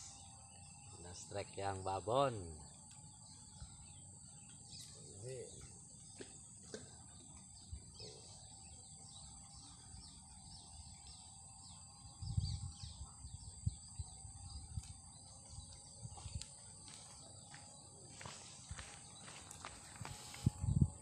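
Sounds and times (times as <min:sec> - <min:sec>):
bird chirping: 0:00.0 - 0:16.5
high insect drone: 0:00.0 - 0:21.0.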